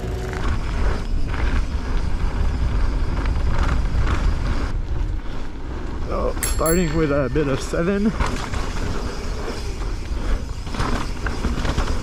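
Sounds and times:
wind rumble on microphone: 0:00.0 - 0:06.4
dirt crackling under wheels: 0:00.0 - 0:12.0
bike tyres rolling on dirt: 0:00.4 - 0:06.3, 0:07.0 - 0:12.0.

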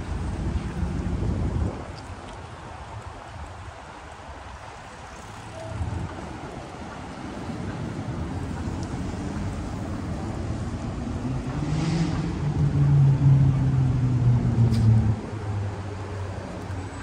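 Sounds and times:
street traffic: 0:04.3 - 0:17.0
vehicle engine hum passing: 0:08.2 - 0:17.0.

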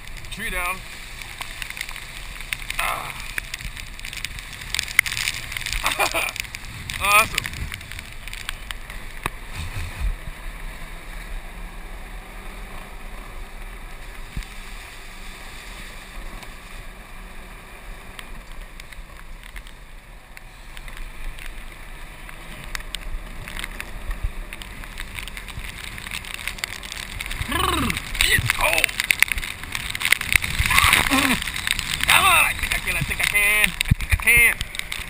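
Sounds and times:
golf cart driving on wet road: 0:00.0 - 0:35.0
wind buffeting microphone: 0:03.4 - 0:08.4, 0:27.1 - 0:34.7.

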